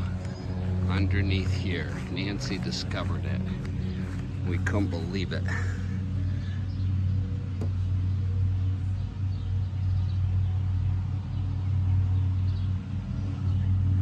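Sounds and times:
engine humming: 0:00.0 - 0:14.0.

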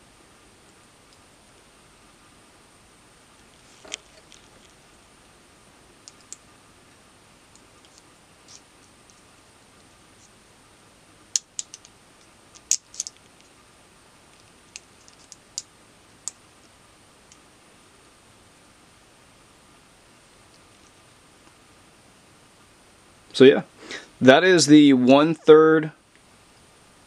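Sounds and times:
small metallic clicks and snaps: 0:06.0 - 0:06.4, 0:11.3 - 0:13.5, 0:14.3 - 0:16.4.

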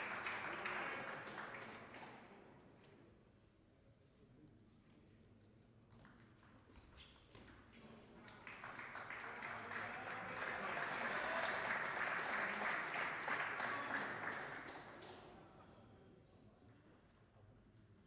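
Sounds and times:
spectators applauding: 0:00.0 - 0:02.3, 0:08.3 - 0:15.2.

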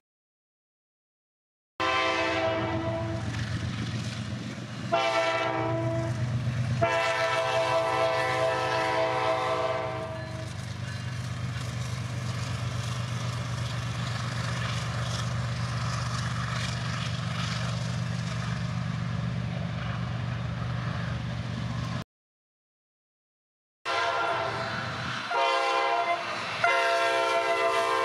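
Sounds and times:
locomotive horn chord: 0:01.8 - 0:03.3, 0:04.9 - 0:06.2, 0:06.8 - 0:10.5, 0:23.9 - 0:28.0
train wheels on rails: 0:01.9 - 0:22.0, 0:24.1 - 0:28.0.

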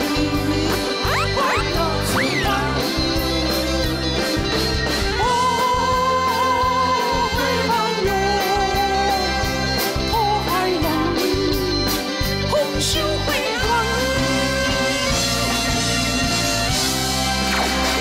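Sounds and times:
group singing a pop song: 0:00.0 - 0:17.8
band backing track with beat: 0:00.0 - 0:18.0.

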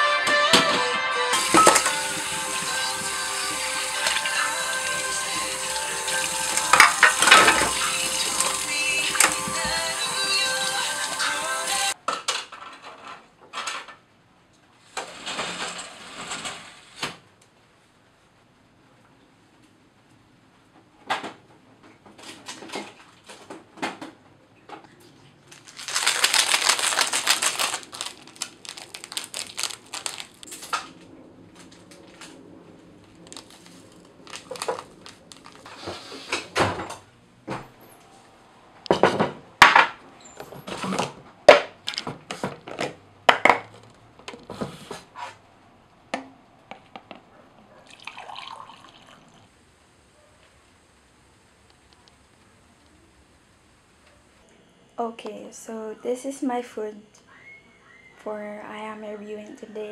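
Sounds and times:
liquid pouring: 0:01.4 - 0:11.4, 0:47.8 - 0:49.5.

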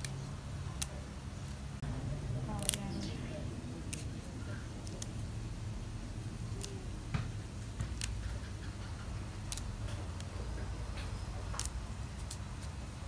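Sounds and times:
steady low hum: 0:00.0 - 0:13.0
leaves snapping off stems: 0:02.6 - 0:03.1, 0:06.5 - 0:06.9, 0:07.8 - 0:08.2, 0:09.4 - 0:10.3, 0:11.5 - 0:12.7.

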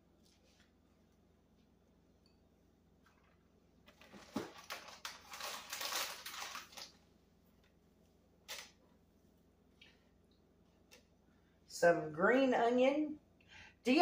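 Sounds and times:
plastic packaging crinkling: 0:03.2 - 0:07.0
plastic packaging rustle: 0:03.2 - 0:07.0.

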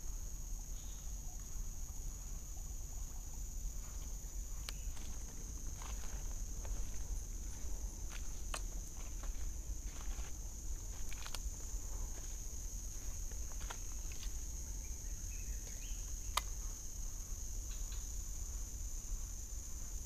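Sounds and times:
high-pitched insect chorus: 0:00.0 - 0:20.0
low rumble on microphone: 0:01.2 - 0:17.6
sharp clicks and snaps: 0:16.3 - 0:16.6.

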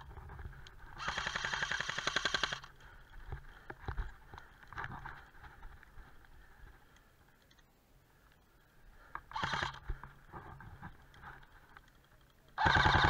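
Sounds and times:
faint ticks: 0:02.6 - 0:12.6
airsoft rifle fire: 0:12.6 - 0:13.0.

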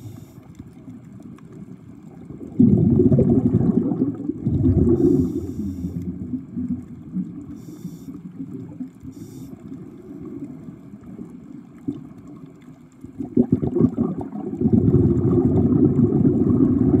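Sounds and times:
short hissing bursts: 0:00.0 - 0:00.5, 0:05.0 - 0:06.1, 0:07.5 - 0:08.2, 0:09.0 - 0:09.6
underwater sloshing and gurgling: 0:00.0 - 0:17.0.

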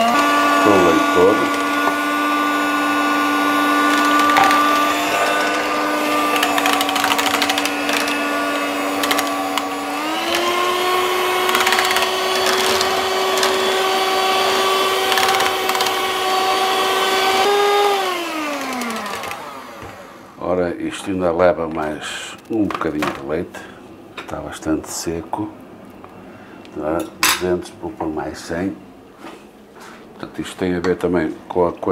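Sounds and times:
electric hand mixer motor hum: 0:00.0 - 0:20.4.

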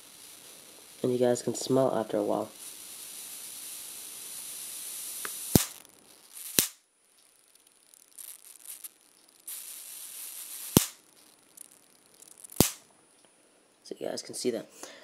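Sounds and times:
electric arc sizzling hiss: 0:00.0 - 0:12.9
sharp spark snaps: 0:00.0 - 0:12.9
thin high whine: 0:00.0 - 0:13.3
faint crackles: 0:00.0 - 0:13.4.

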